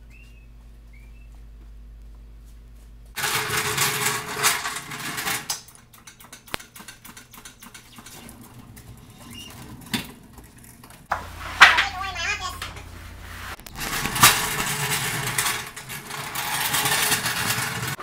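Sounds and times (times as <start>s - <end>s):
pallet jack rattling on concrete: 3.2s - 12.9s, 13.7s - 18.0s.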